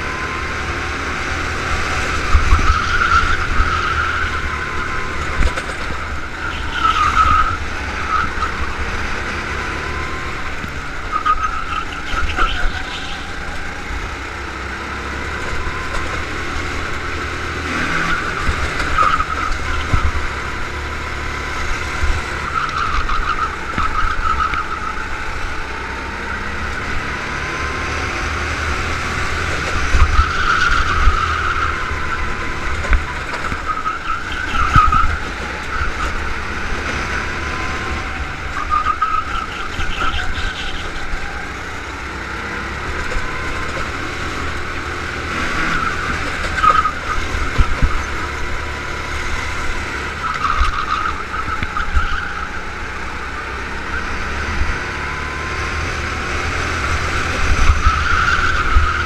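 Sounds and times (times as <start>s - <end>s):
go-kart engine revving: 0.0s - 59.0s.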